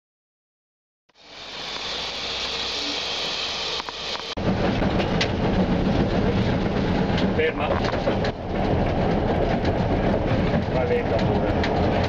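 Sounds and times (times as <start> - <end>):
steam locomotive hissing: 1.1 - 4.8.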